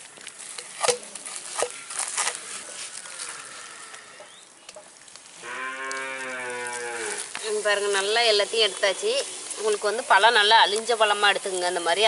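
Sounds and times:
cow mooing: 5.4s - 7.3s.

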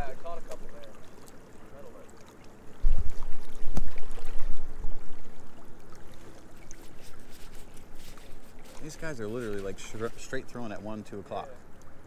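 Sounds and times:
water lapping: 0.0s - 12.0s.

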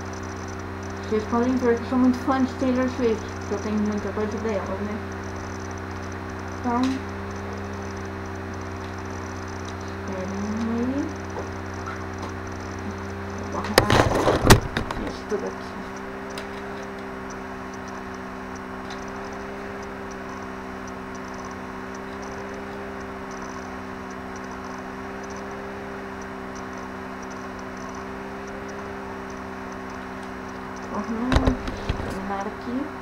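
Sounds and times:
low hum of held tones: 0.0s - 33.0s
faint light ticks: 15.3s - 31.4s.

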